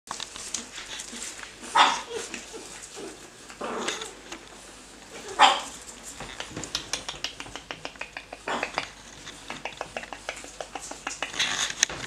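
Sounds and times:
puppies yapping and yelping: 1.1s - 4.2s.

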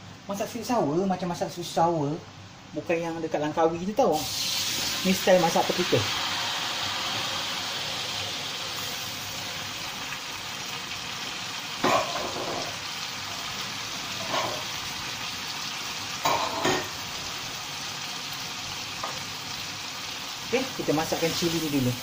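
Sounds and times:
loud sizzle bursts: 4.1s - 22.0s
paste sizzling in hot oil: 4.2s - 11.8s, 12.6s - 22.0s.

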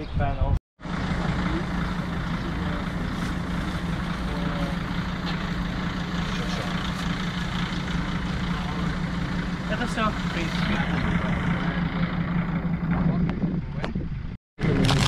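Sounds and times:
large vehicle engine idling: 0.8s - 13.6s.

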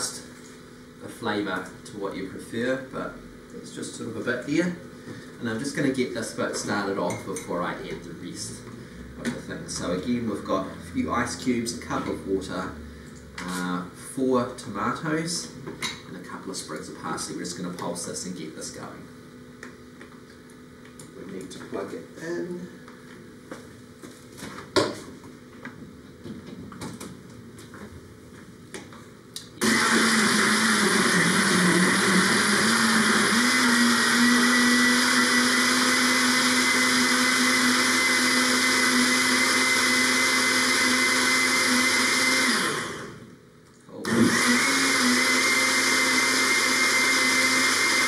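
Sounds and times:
blender motor whining: 29.6s - 43.4s, 44.0s - 48.0s.

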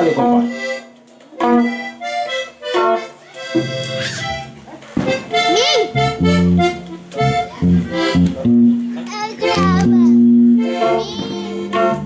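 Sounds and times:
accordion melody: 0.0s - 12.0s
electric guitar: 5.5s - 12.0s
electric bass line: 6.0s - 9.0s, 9.6s - 11.0s.

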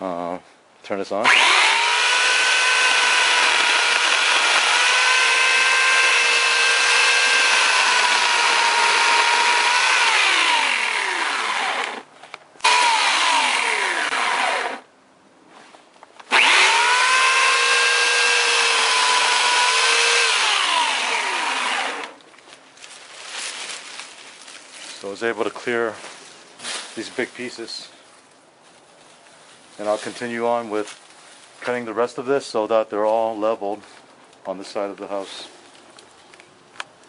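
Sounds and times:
electric chainsaw cutting branches: 1.2s - 14.9s, 16.2s - 22.2s.

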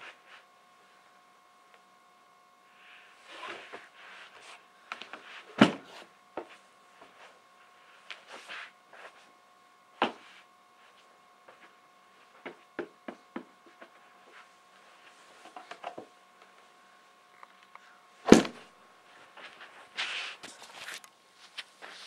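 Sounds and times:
faint steady whine: 0.0s - 22.0s
snowboard thudding on floor: 18.3s - 18.6s.

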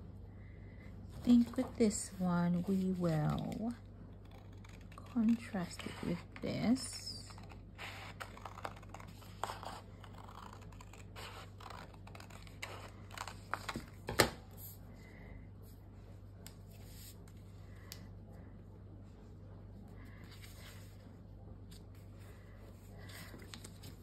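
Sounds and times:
paper handling: 4.6s - 14.8s, 23.0s - 24.0s.

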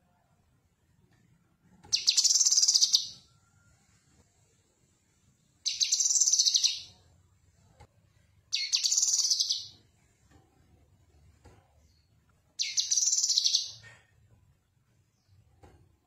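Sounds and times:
bird singing trilled phrases: 1.9s - 3.2s, 5.6s - 6.9s, 8.5s - 9.7s, 12.6s - 13.8s.

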